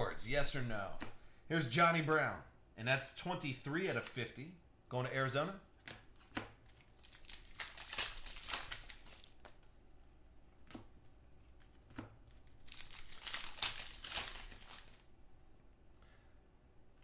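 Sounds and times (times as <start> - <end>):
foil wrappers crinkling and tearing: 6.7 - 9.5, 12.4 - 15.1.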